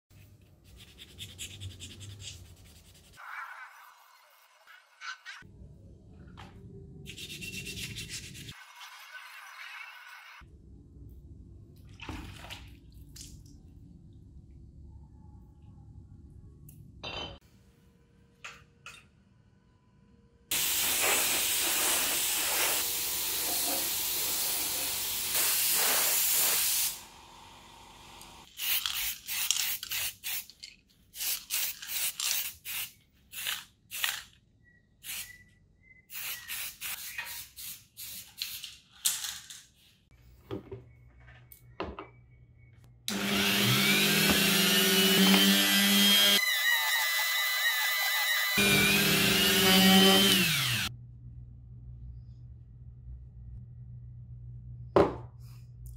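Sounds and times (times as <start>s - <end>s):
spray paint can hissing: 20.5s - 27.0s, 28.5s - 30.6s, 31.2s - 34.2s, 35.0s - 35.3s, 36.1s - 38.7s.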